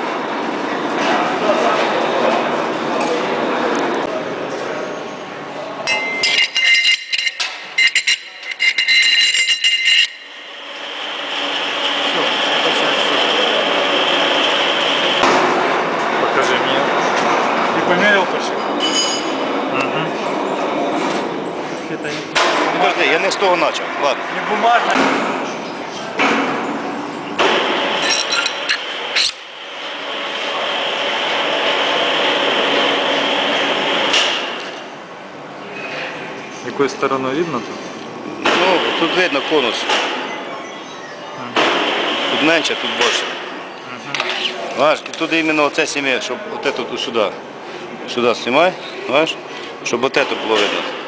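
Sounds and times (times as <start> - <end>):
metal ring clinking on spindle: 5.9 - 10.1, 18.8 - 19.4
high-edged mechanical noise: 5.9 - 21.7, 26.6 - 35.6
metal parts clinking: 28.0 - 29.3.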